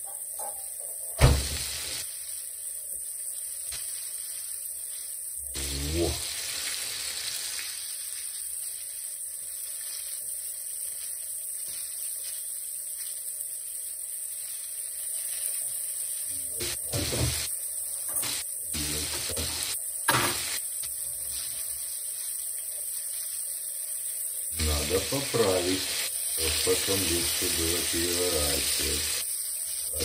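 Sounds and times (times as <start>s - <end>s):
fish frying in oil: 0.0s - 30.0s.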